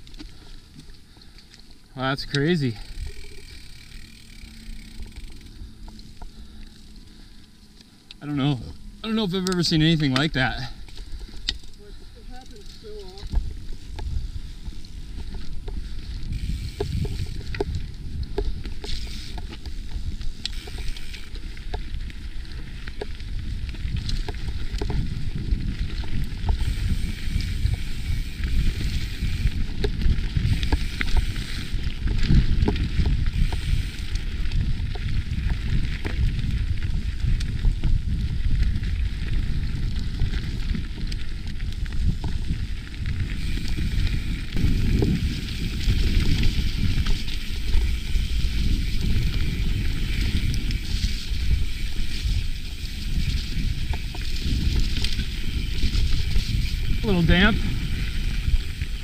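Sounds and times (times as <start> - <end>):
bike rattling over roots: 0.0 - 59.0
bike tyres rolling on dirt: 0.0 - 59.0.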